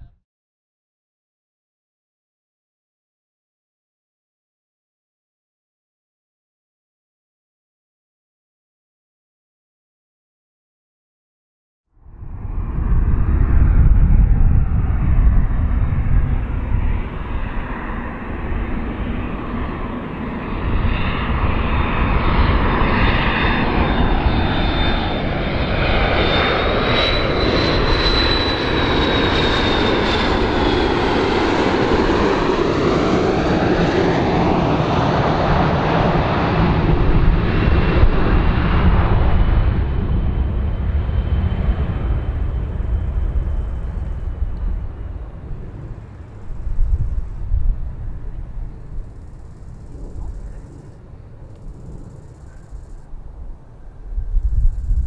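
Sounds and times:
jet plane roar with engine whine: 11.9 - 55.0.

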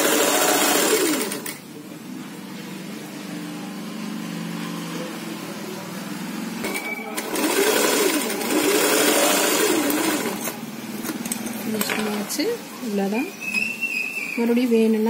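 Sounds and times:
electric sewing machine stitching: 0.0 - 1.6, 6.6 - 10.6.

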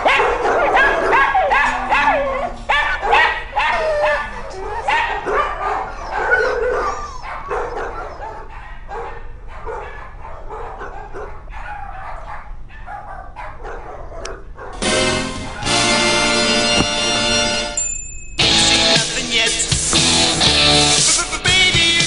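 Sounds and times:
dogs barking: 0.0 - 17.0
music: 14.8 - 17.8, 18.4 - 22.0.

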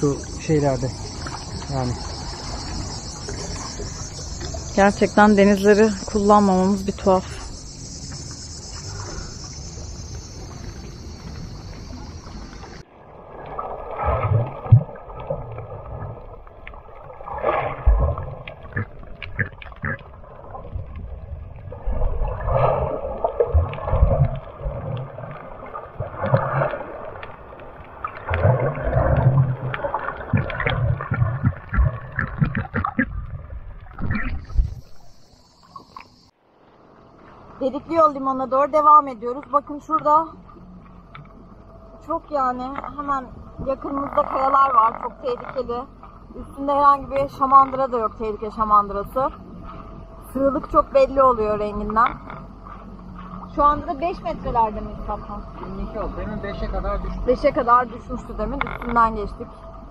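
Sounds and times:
insects chirring: 0.0 - 12.8, 33.8 - 59.9
muffled underwater water sloshing: 0.0 - 59.9
underwater thumps: 28.3 - 35.0.

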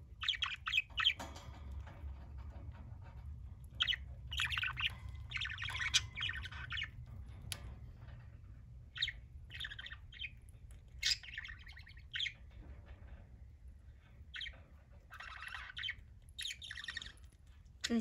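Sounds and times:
low steady hum: 0.0 - 18.0
budgerigar chirping: 0.2 - 1.2, 3.8 - 7.0, 8.9 - 10.4, 11.0 - 12.4, 14.3 - 17.2.

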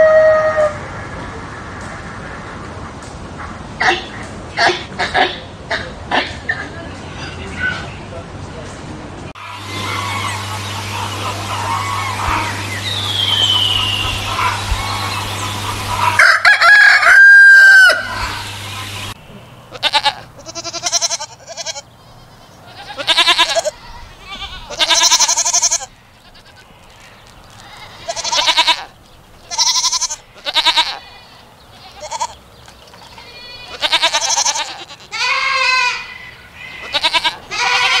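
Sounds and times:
rooster crowing: 0.0 - 0.9, 15.9 - 18.6
goats bleating: 19.7 - 32.4, 33.1 - 38.0.

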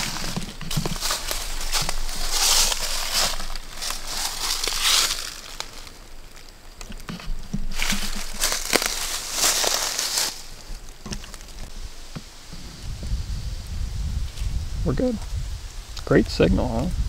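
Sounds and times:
dry leaves crunching and rustling: 0.0 - 6.8, 7.7 - 11.8.

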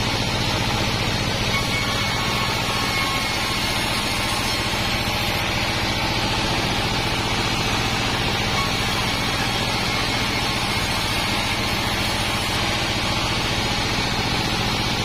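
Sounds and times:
band saw cutting timber: 0.0 - 15.0
diesel engine throbbing: 0.0 - 15.0.

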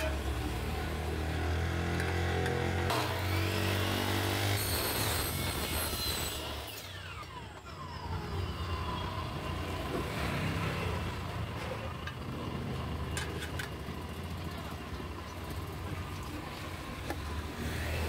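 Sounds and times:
miter saw cutting metal: 0.0 - 8.6.

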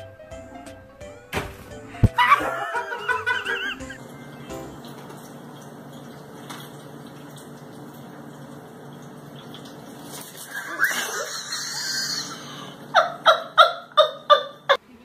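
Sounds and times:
person laughing: 2.0 - 4.1, 10.6 - 14.8.

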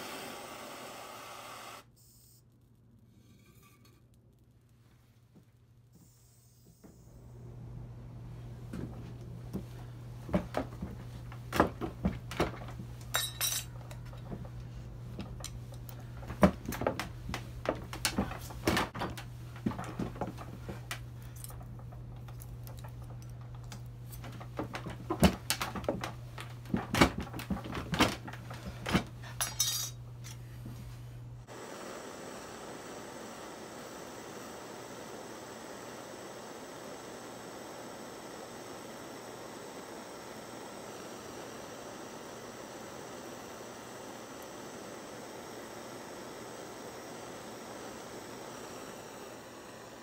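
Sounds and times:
gas torch flame hissing: 0.0 - 1.9, 31.4 - 50.0
steady low hum: 1.9 - 50.0
metallic clinks from rolling mill: 13.1 - 14.0, 29.4 - 30.0.

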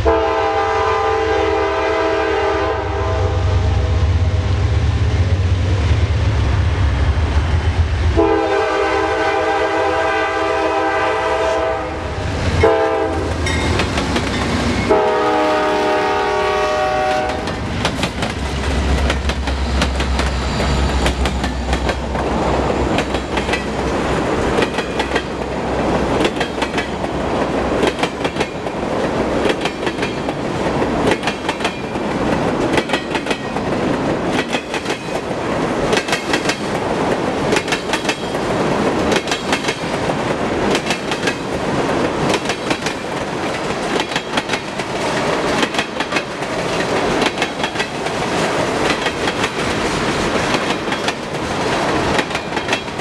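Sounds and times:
train rumble: 0.0 - 53.0
train wheels clacking on rail joints: 12.5 - 15.3, 17.0 - 53.0.

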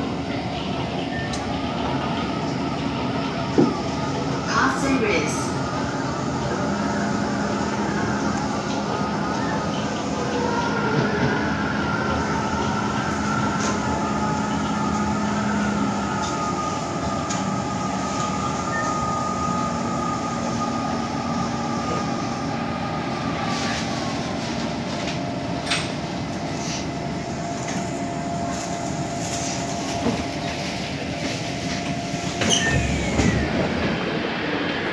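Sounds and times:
train running gear whine: 0.0 - 34.9.

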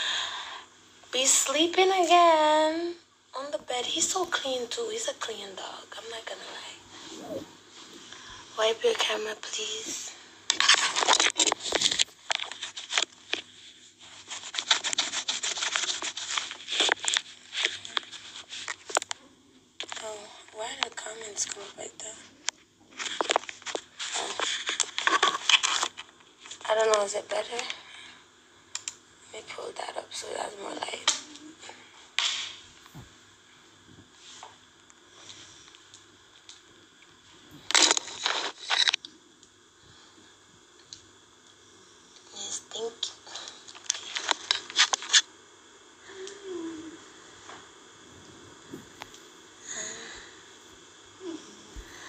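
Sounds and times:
faint hum: 0.0 - 52.0
scratching on phone microphone: 6.9 - 8.1, 10.6 - 19.0, 22.9 - 26.7, 37.8 - 39.0.

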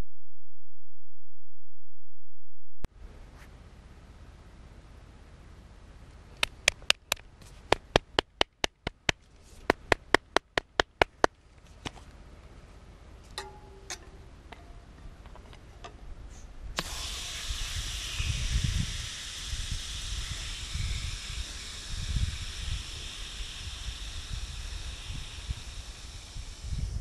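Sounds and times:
aerosol can mixing ball clicking: 6.4 - 11.3
light clicks and scrapes of nozzle: 15.3 - 18.4
aerosol can hissing: 16.8 - 27.0.

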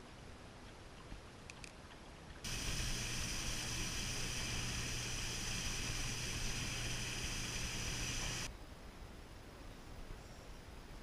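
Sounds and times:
boat motor humming: 2.5 - 8.5
high-pitched hiss: 2.5 - 8.5.

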